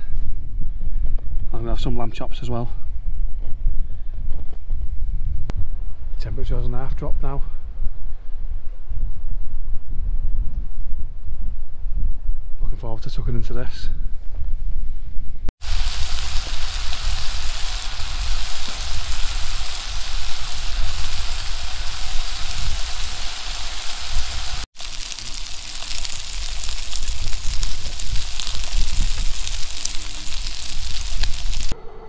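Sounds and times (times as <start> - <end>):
food sizzling in a pan: 15.6 - 31.8
low rumble of stove: 24.5 - 32.0.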